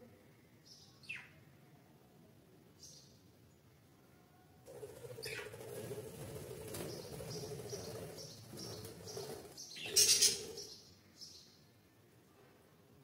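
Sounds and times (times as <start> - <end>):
budgerigars chirping: 6.9 - 10.8.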